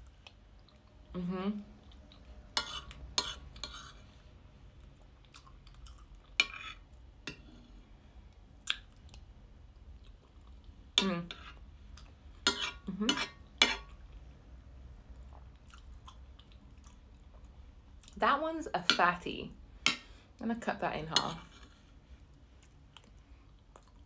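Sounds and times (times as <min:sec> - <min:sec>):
person humming: 0:01.1 - 0:01.7
metal spoon scraping plate: 0:02.6 - 0:04.0, 0:06.4 - 0:07.7, 0:12.4 - 0:13.9.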